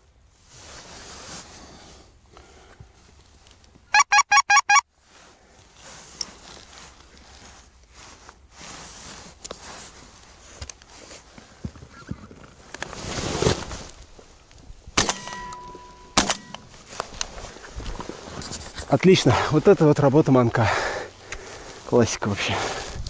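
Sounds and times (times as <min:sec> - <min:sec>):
faint rustling: 0:00.3 - 0:03.9, 0:05.0 - 0:14.8, 0:15.6 - 0:23.0
goose call honking: 0:03.9 - 0:04.8.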